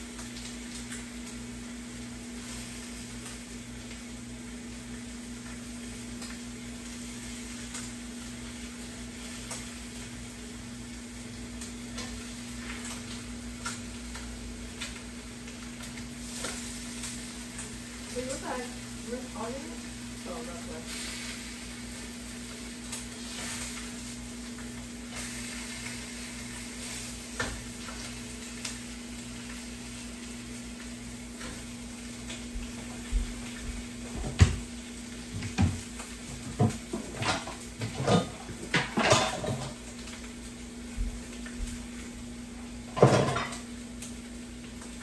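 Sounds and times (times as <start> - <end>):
food sizzling in a frying pan: 0.0 - 45.0
dishes and cookware clattering: 36.5 - 39.8, 42.9 - 43.6.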